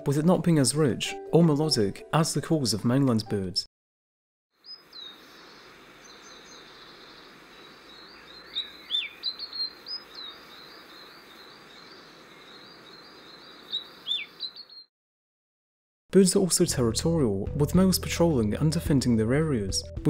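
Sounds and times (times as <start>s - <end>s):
background hiss: 4.6s - 14.6s
bird singing high notes: 11.8s - 14.9s.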